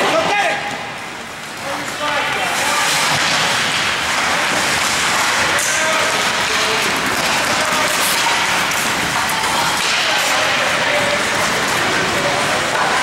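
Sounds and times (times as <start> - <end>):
sharp skate scrape: 2.5 - 12.9.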